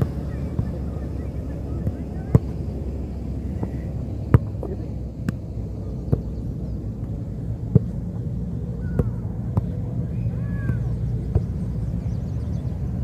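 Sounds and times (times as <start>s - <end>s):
steady low rumble: 0.0s - 13.0s
ball kicks thudding: 3.6s - 5.4s, 7.7s - 8.0s, 8.8s - 9.8s.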